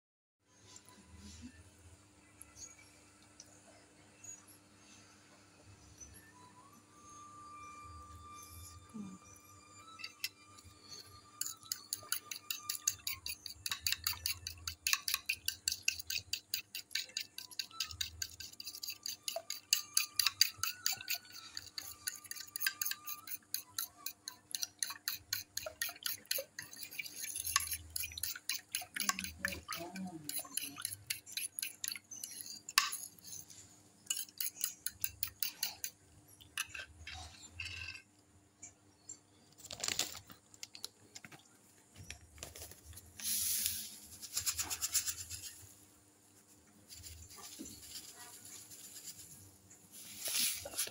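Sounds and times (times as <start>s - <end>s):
utensil beating eggs in dish: 10.0s - 37.8s, 43.2s - 45.7s, 46.9s - 50.9s.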